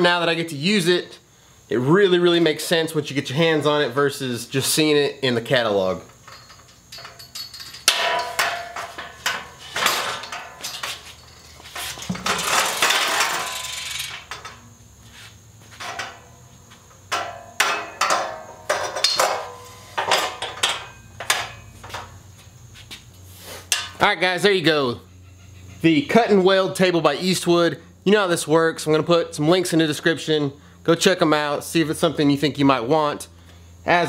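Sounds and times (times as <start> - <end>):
steel work stand clanking: 6.1 - 14.6, 15.8 - 16.3, 17.1 - 22.1, 23.7 - 24.0
metal scrape: 6.3 - 14.2.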